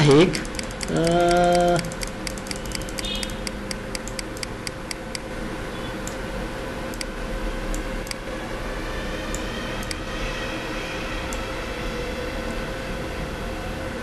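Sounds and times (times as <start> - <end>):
computer mouse clicking: 0.2 - 5.2, 6.9 - 7.1, 7.7 - 8.2, 9.8 - 10.0
person humming: 0.9 - 1.9.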